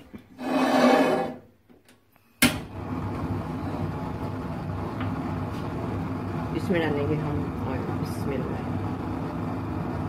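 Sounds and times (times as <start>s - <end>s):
pan scraping on stove grate: 0.4s - 1.4s
gas burner whoosh and rushing: 2.6s - 10.0s.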